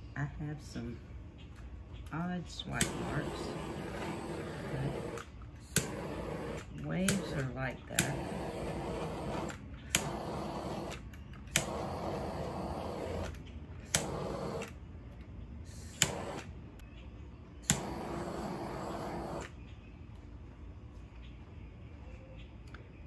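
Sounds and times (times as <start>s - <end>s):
torch flame hissing: 2.5s - 14.8s, 15.6s - 16.6s, 17.6s - 19.6s.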